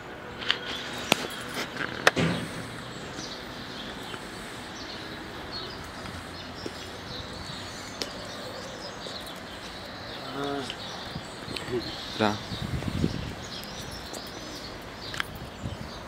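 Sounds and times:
outdoor background noise: 0.0 - 16.0
small birds chirping: 0.4 - 16.0
short thump: 2.1 - 3.2.

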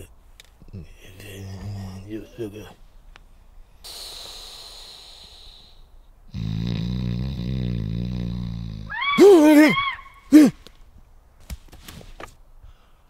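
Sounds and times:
man snoring: 6.3 - 8.9
startled vocal cry: 8.8 - 10.7.

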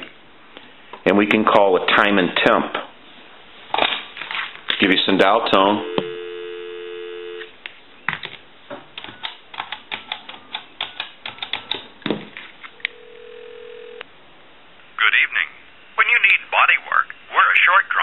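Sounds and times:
phone line ringing tone: 5.8 - 7.5, 12.9 - 14.0
telephone dial tone: 5.8 - 7.5, 12.8 - 14.0.

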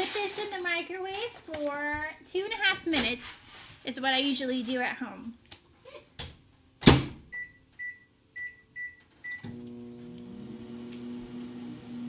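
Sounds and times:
microwave keypad beeping: 7.4 - 9.5
microwave oven humming: 9.3 - 12.0.

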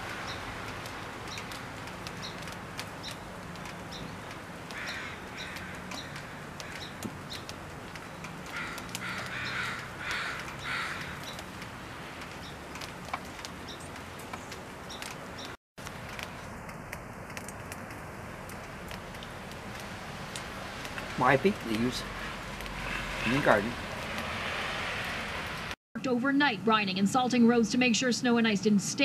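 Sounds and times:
crows cawing: 4.7 - 7.4, 8.4 - 11.5, 21.8 - 23.8.

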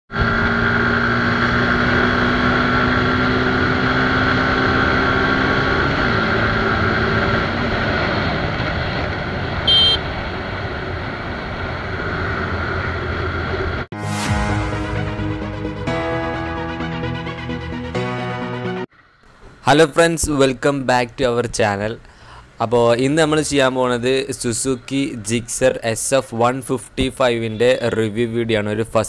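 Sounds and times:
motorcycle engine cruising: 0.1 - 13.9
wind and road noise: 0.1 - 13.9, 19.2 - 29.0
high beep: 9.7 - 10.0
intro music: 13.9 - 18.9.

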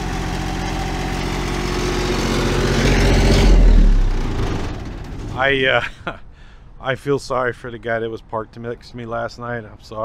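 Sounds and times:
diesel generator running: 0.0 - 6.8
housing rattle: 1.0 - 5.8.

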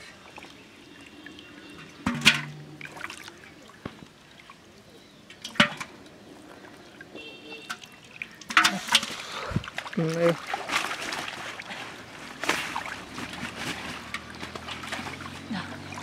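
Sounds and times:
water splashing and dripping: 0.0 - 16.0
sharp splashes: 7.2 - 16.0.

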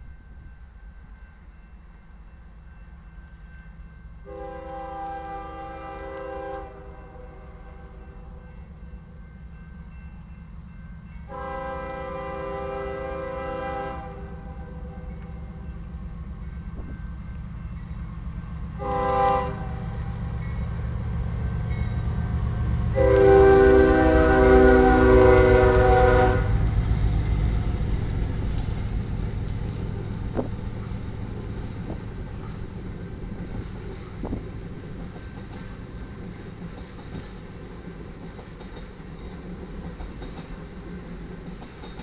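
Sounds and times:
freight train rumbling past: 0.0 - 42.0
locomotive horn blast: 4.2 - 8.0, 11.3 - 15.2, 18.8 - 20.2, 22.9 - 26.7.

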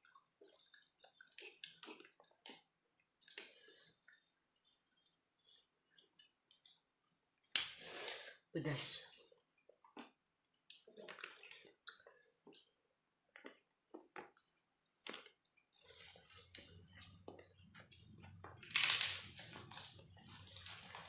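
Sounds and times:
man chewing with mouth smacks: 0.0 - 7.6, 9.2 - 21.0
low steady hum: 15.5 - 21.0.

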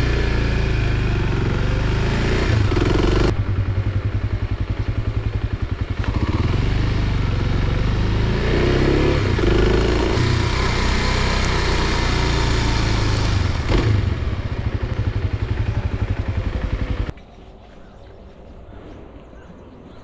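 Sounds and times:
motorcycle engine running: 0.0 - 17.1.

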